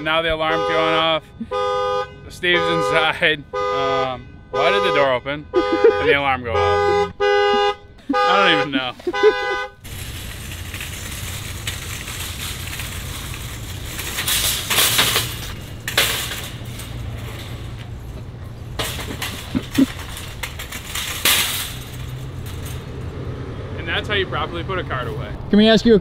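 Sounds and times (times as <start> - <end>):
car alarm horn blaring: 0.4 - 9.8
shopping cart rattling: 8.4 - 23.2.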